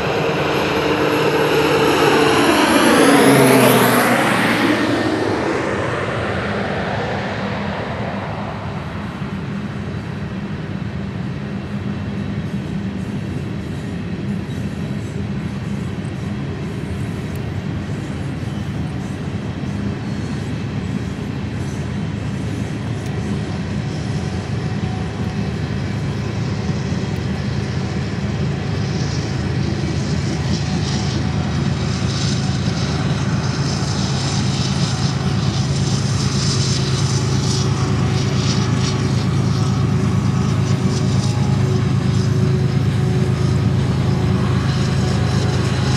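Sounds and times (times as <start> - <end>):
freight train rolling past: 0.0 - 11.0, 23.4 - 45.9
airplane engine drone: 0.0 - 45.9.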